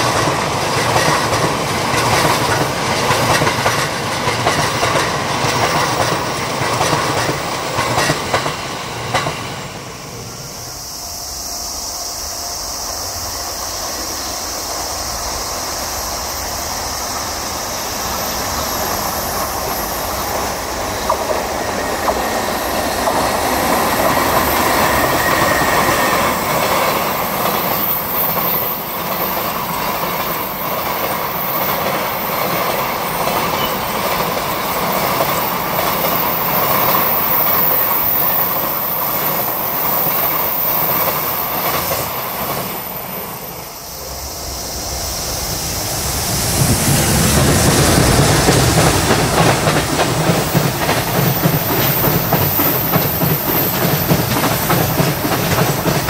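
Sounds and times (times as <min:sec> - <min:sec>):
wheels clicking over rail joints: 0:00.0 - 0:09.4, 0:47.4 - 0:56.0
train wheels rumbling on rails: 0:00.0 - 0:56.0.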